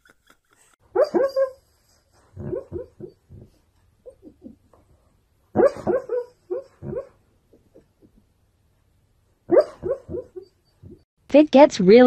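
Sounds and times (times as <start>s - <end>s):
dog woofing and whimpering: 1.0s - 4.8s, 5.6s - 8.1s, 9.5s - 11.0s.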